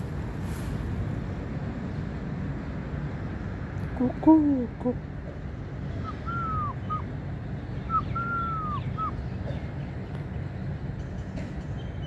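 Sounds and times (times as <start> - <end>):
steady low rumble: 0.0 - 12.0
bird whistled call: 6.0 - 7.1, 7.8 - 9.2.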